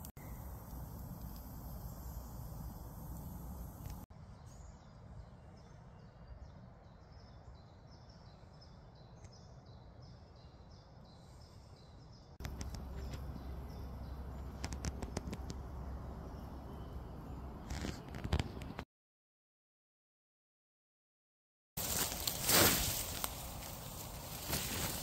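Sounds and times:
camp stove burning: 0:00.0 - 0:04.0, 0:21.8 - 0:25.0
songbird singing: 0:00.0 - 0:18.8.

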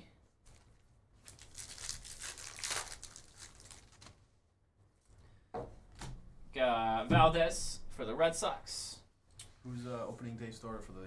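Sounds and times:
wrapper crinkling as torn open: 0:00.5 - 0:04.2.

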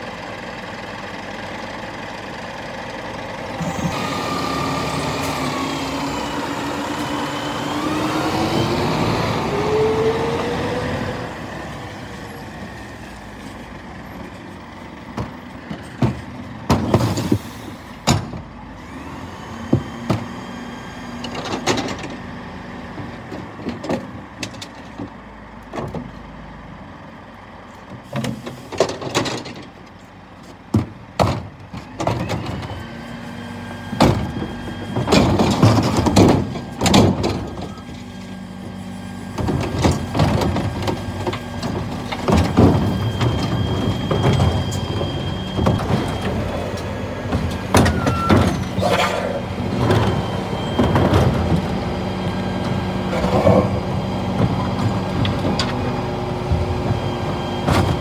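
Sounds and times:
diesel engine running: 0:00.0 - 0:58.0
hydraulic whine: 0:03.5 - 0:13.2, 0:40.9 - 0:58.0
metallic clanks of bins: 0:34.0 - 0:38.1, 0:39.3 - 0:51.7.

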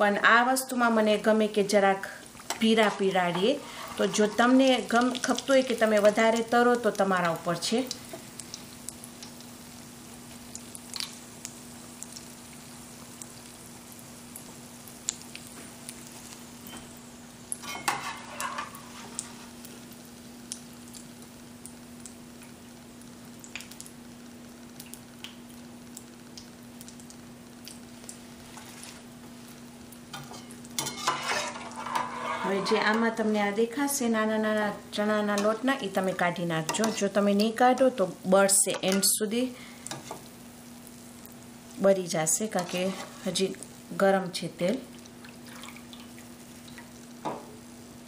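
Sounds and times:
food sizzling in hot oil: 0:00.0 - 0:48.0
metal spoon scraping pan: 0:02.5 - 0:04.6, 0:17.6 - 0:19.2, 0:30.2 - 0:33.1, 0:36.6 - 0:37.2, 0:42.5 - 0:43.4.

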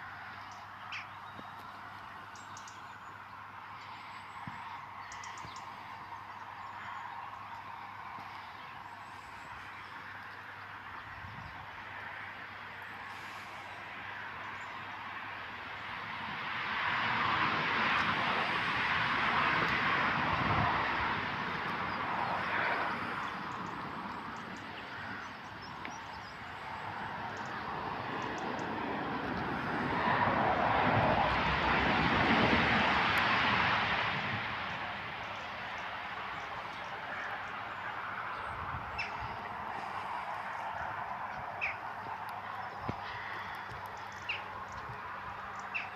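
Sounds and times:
road traffic rushing past: 0:00.0 - 0:45.9.

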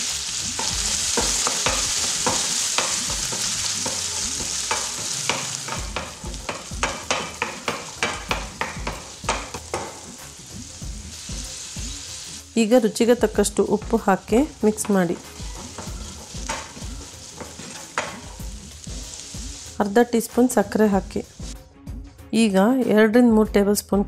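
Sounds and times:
chickpeas sizzling in oil: 0:00.0 - 0:21.6
wooden spatula scraping a pan: 0:14.2 - 0:19.4.

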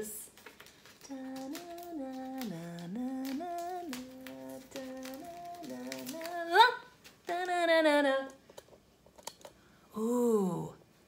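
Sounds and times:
paper rustling: 0:00.2 - 0:07.7
woman humming a tune: 0:10.0 - 0:10.8.

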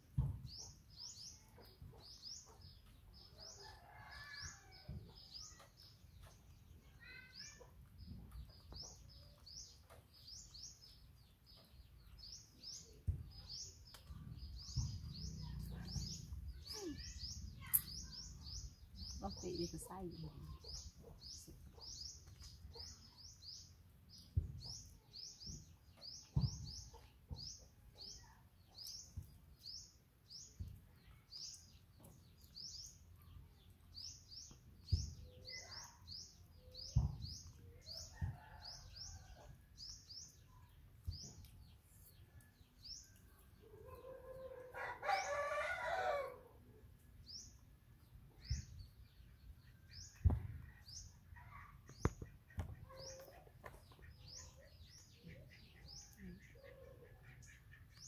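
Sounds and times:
small bird chirping: 0:00.0 - 0:45.7, 0:47.0 - 0:58.0
dull low knocks: 0:13.0 - 0:17.7
rooster crowing: 0:44.7 - 0:46.4.

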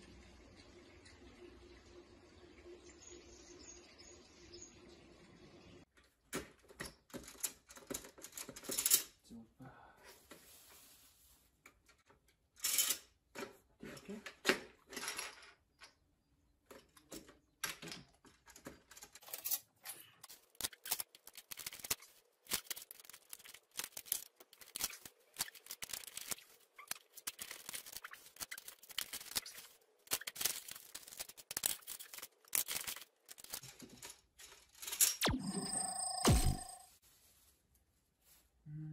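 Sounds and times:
plastic discs clicking: 0:20.3 - 0:33.6.

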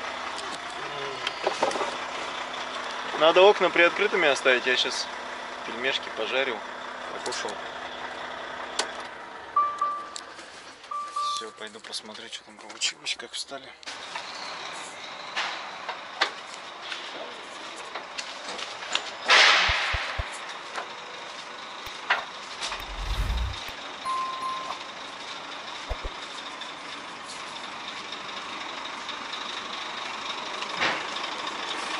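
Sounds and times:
short beep: 0:10.9 - 0:11.6, 0:22.7 - 0:24.9
short low rumble: 0:19.7 - 0:20.2, 0:22.7 - 0:23.7, 0:25.9 - 0:26.1
steady hum: 0:22.7 - 0:23.7.

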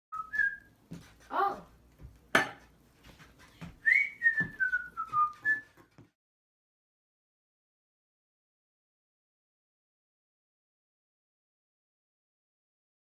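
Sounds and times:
person whistling: 0:00.1 - 0:00.7, 0:03.8 - 0:05.8.

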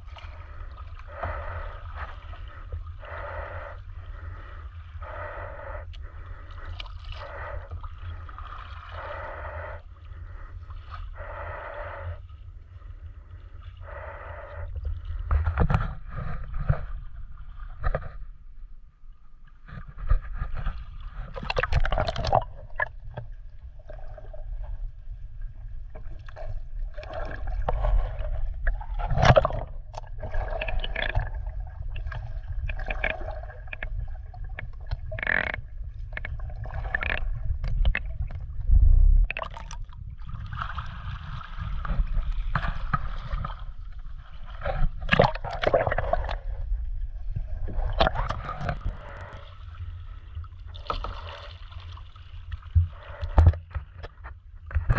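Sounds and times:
water sloshing and splashing: 0:00.0 - 0:11.3, 0:19.6 - 0:54.9
steady low rumble: 0:31.2 - 0:45.0, 0:45.6 - 0:50.7.

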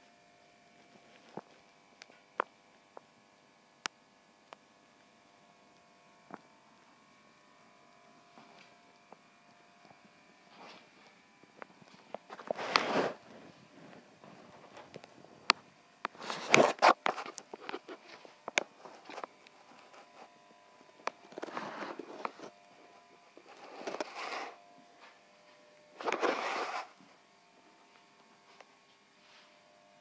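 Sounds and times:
rustling handling noise: 0:10.5 - 0:15.3, 0:16.1 - 0:20.3, 0:21.1 - 0:22.5.

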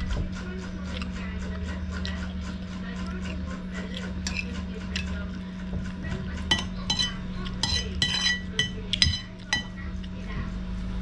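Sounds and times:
metal spoon scraping ceramic plate: 0:03.3 - 0:05.1, 0:06.4 - 0:09.8.

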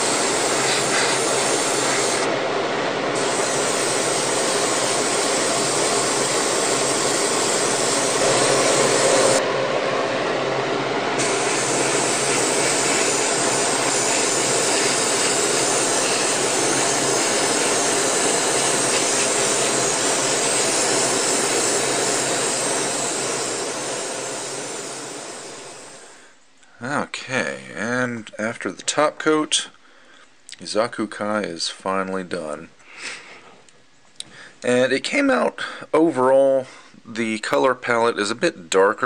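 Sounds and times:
airbrush spraying hiss: 0:00.0 - 0:02.3, 0:03.2 - 0:09.4, 0:11.2 - 0:26.2
exhaust fan hum: 0:00.0 - 0:26.3.

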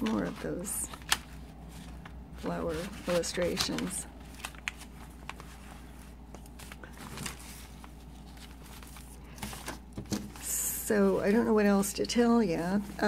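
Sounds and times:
low steady hum: 0:00.0 - 0:13.0
paper pages rustling: 0:00.0 - 0:13.0.

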